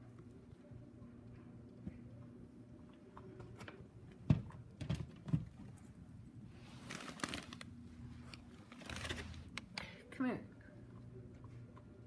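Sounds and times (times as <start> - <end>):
dog rustling gift wrapping: 6.6 - 9.6.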